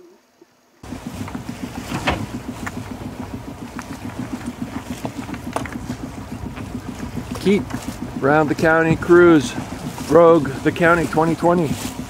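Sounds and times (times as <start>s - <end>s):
water along boat hull: 0.0s - 12.0s
wind: 0.0s - 12.0s
sharp knocks: 0.8s - 8.2s.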